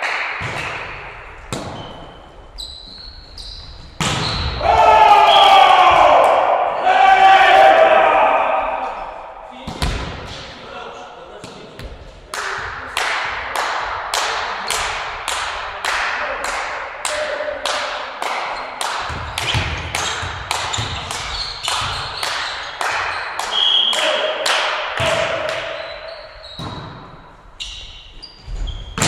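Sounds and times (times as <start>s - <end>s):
rhythmic hand clapping: 12.3s - 24.8s.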